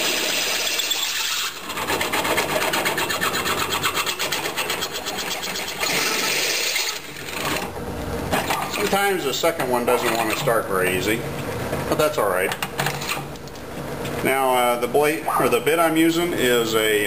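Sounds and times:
drill bit scraping metal: 0:00.0 - 0:07.6, 0:09.5 - 0:10.6
drill press motor running: 0:00.0 - 0:11.0.

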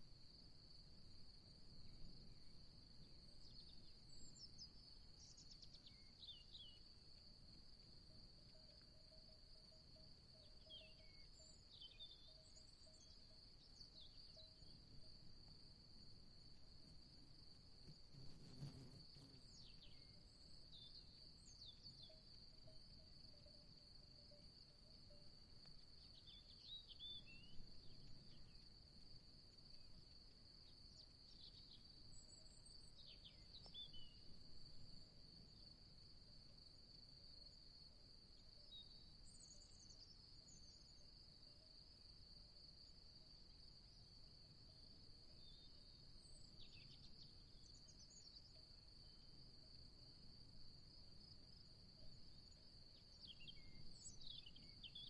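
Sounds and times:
bird chirps: 0:10.4 - 0:14.8.

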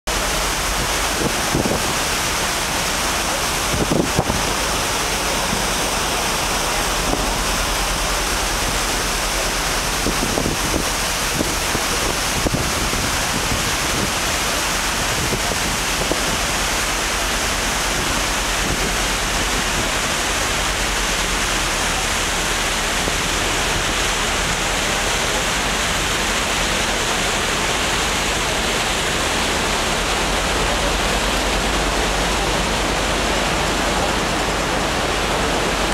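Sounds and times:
boat wake churning water: 0:00.0 - 0:35.9
wind across microphone: 0:00.6 - 0:02.2, 0:03.6 - 0:05.8, 0:09.8 - 0:16.6.

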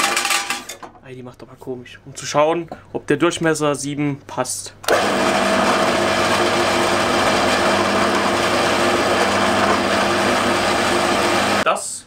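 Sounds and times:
drill press humming: 0:04.9 - 0:11.6.

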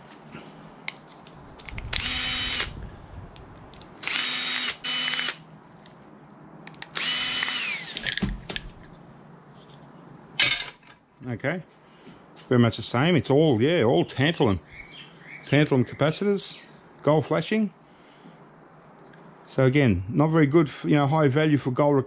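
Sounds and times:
electric drill-driver whirring: 0:01.9 - 0:02.8, 0:04.0 - 0:05.4, 0:06.9 - 0:08.2.

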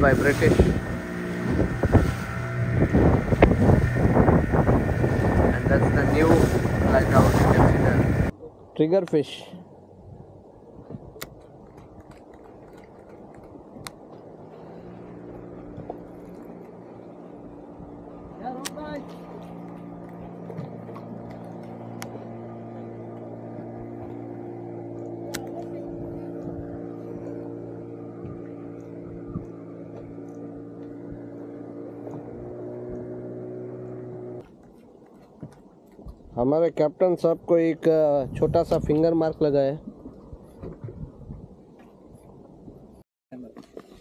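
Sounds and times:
low steady hum: 0:00.0 - 0:11.6, 0:13.2 - 0:37.0
sea noise: 0:00.0 - 0:44.0
wind: 0:00.0 - 0:44.0.

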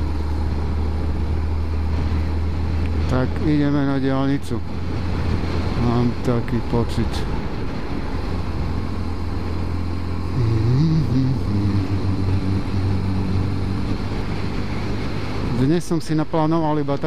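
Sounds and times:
wind and road noise: 0:00.0 - 0:17.0
motorcycle engine running: 0:07.3 - 0:15.7.

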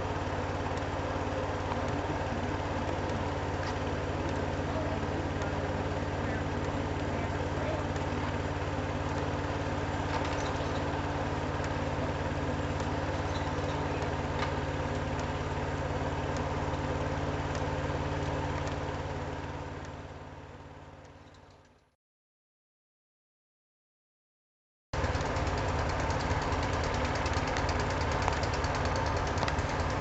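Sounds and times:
engine idling: 0:00.0 - 0:21.9, 0:25.0 - 0:30.0.

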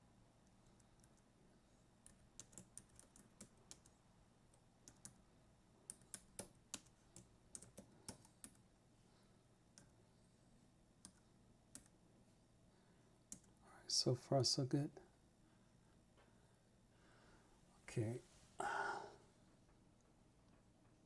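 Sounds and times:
keyboard keys clicking: 0:02.0 - 0:03.9.

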